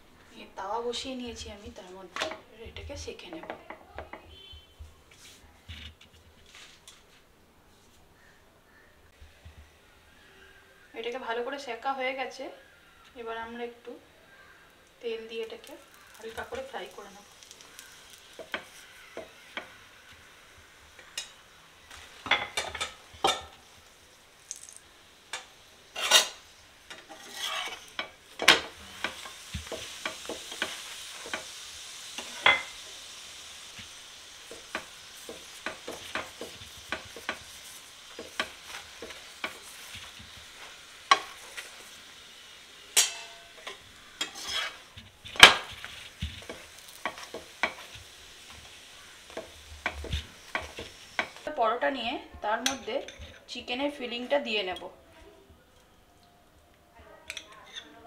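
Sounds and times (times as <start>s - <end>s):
flatbread sizzling in a pan: 0.0s - 54.6s
metal spatula scraping and tapping: 17.4s - 19.8s, 25.3s - 31.5s, 34.5s - 40.4s, 41.1s - 41.8s, 43.0s - 48.6s, 49.3s - 51.4s.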